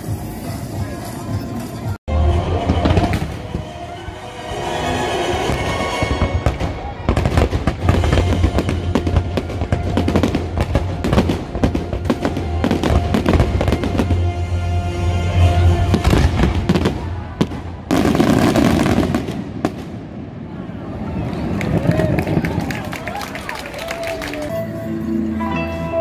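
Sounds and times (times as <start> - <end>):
loud show music: 0.0 - 16.9
fireworks bangs: 2.6 - 3.8, 5.3 - 14.4, 15.8 - 20.6.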